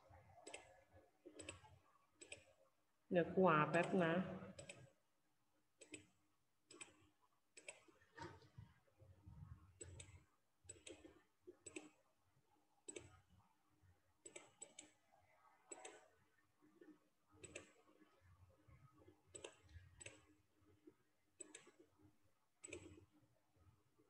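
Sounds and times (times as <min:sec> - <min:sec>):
computer mouse clicking: 0:00.4 - 0:02.6, 0:04.6 - 0:05.0, 0:05.8 - 0:08.4, 0:09.8 - 0:12.1, 0:12.8 - 0:13.3, 0:14.2 - 0:15.0, 0:15.7 - 0:16.2, 0:16.8 - 0:18.0, 0:18.9 - 0:20.4, 0:21.4 - 0:22.0, 0:22.6 - 0:23.2.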